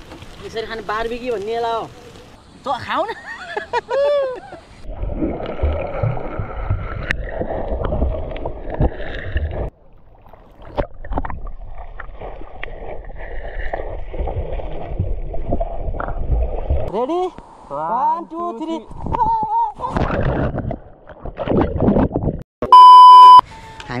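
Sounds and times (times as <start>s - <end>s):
wind rumbling on microphone: 18.8s - 22.4s.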